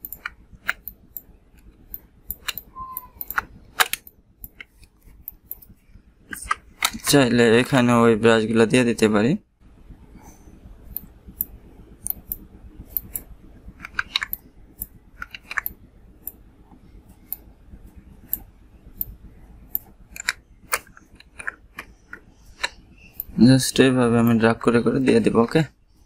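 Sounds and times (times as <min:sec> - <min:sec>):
faint low hum: 0:00.0 - 0:26.0
mouse and keyboard clicks: 0:01.9 - 0:05.7, 0:10.9 - 0:15.8.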